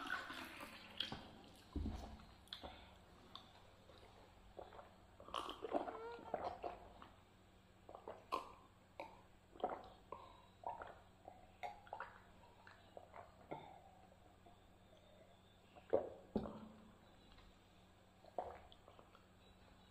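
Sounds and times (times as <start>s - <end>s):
gulping water: 0.0s - 17.0s, 18.0s - 19.9s
wet throat gurgles: 4.6s - 7.0s, 7.9s - 14.4s, 18.2s - 19.2s.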